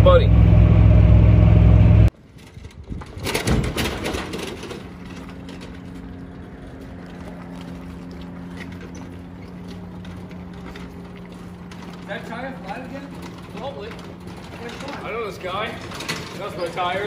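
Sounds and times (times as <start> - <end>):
loud rushing burst: 0.0 - 2.1
small engine running: 4.5 - 17.0.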